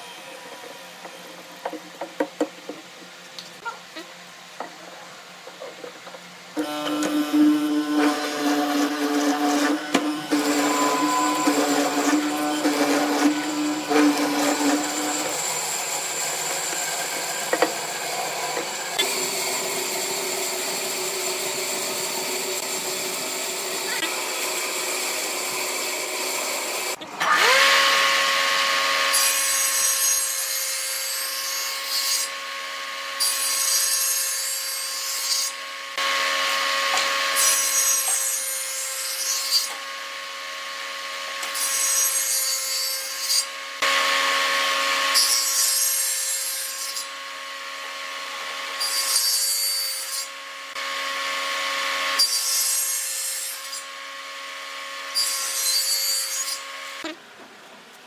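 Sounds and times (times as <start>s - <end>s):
table saw motor whining: 6.6s - 30.3s
saw blade cutting wood: 6.6s - 32.4s, 33.2s - 39.9s, 41.3s - 47.2s, 55.0s - 57.2s.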